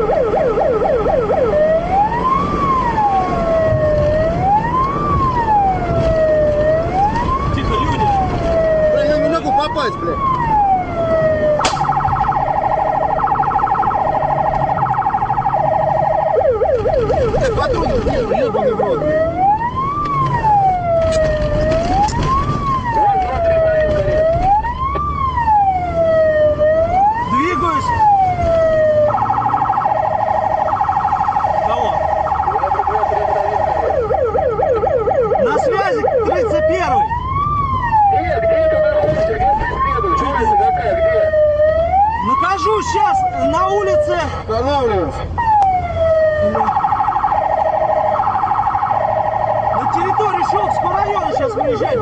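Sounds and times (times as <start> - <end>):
police siren wail: 0.0 - 52.0
siren switch click: 11.6 - 12.3.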